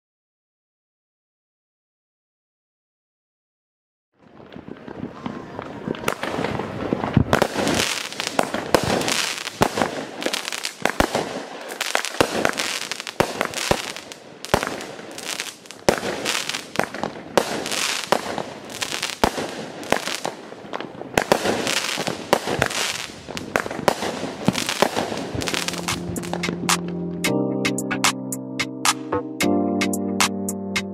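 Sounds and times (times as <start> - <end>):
firework crackle: 4.2 - 26.8
firework launch and burst bangs: 4.4 - 26.8.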